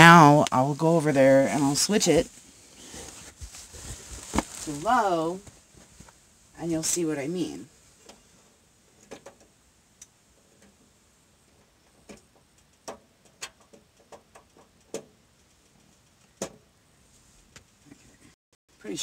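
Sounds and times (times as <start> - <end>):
faint heater clicks and ticks: 9.4 - 10.8, 11.6 - 16.4.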